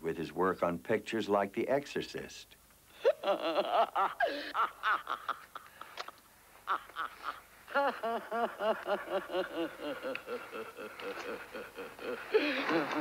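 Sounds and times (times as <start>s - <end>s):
person cackling laughter: 3.0s - 13.0s.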